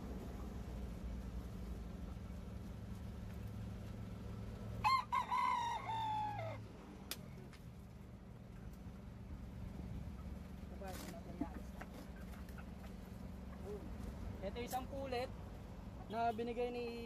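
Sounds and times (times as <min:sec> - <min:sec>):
rooster crowing: 0:04.8 - 0:06.6.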